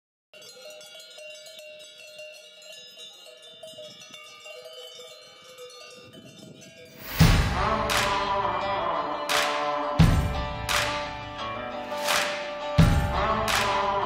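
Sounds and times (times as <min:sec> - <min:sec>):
cowbells clanging: 0:00.3 - 0:10.4.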